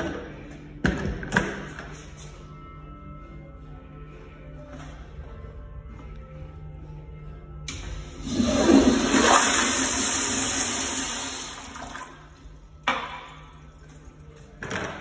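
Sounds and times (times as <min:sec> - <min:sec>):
toilet flushing: 0:07.7 - 0:12.4.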